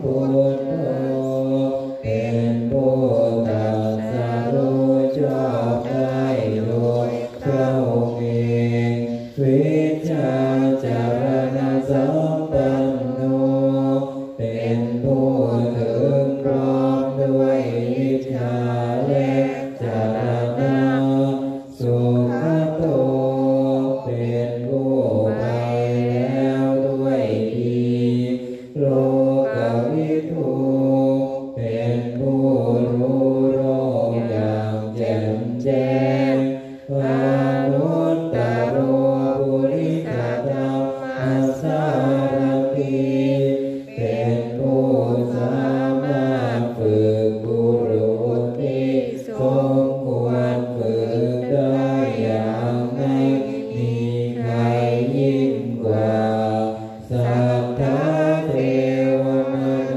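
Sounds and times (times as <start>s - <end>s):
monks chanting in unison: 0.0s - 59.9s.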